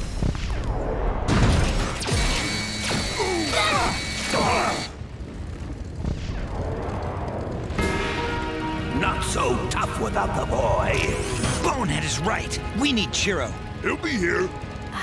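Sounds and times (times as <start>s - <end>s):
mechanical whirring: 0.1s - 15.0s
energy-weapon zaps: 0.4s - 5.0s.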